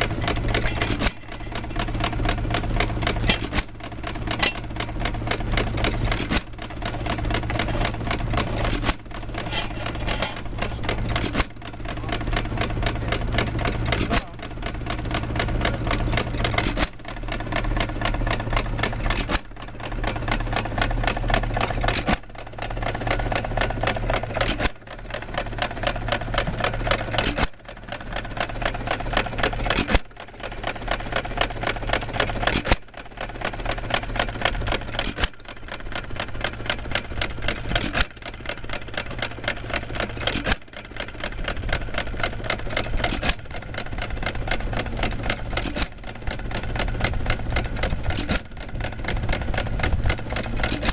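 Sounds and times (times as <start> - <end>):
gas engine clattering: 0.0 - 50.9.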